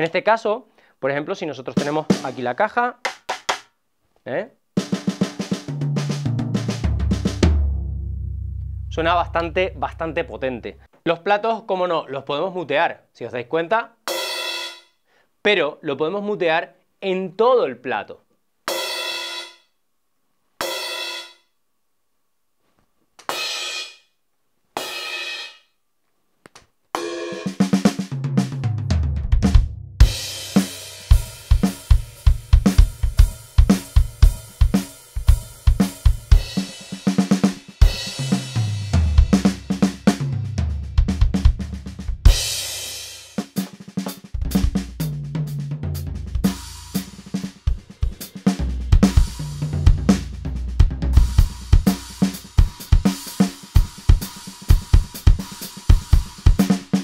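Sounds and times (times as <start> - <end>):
electronic drum groove: 3.0 - 3.6, 4.8 - 7.5, 27.0 - 28.6, 29.2 - 57.0.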